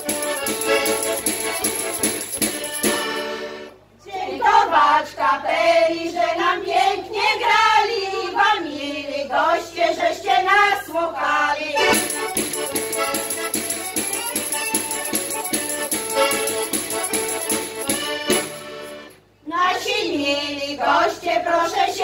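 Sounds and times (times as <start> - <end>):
instrumental music: 0.0 - 3.9, 11.8 - 19.2
women singing together: 4.0 - 12.1, 19.4 - 22.0.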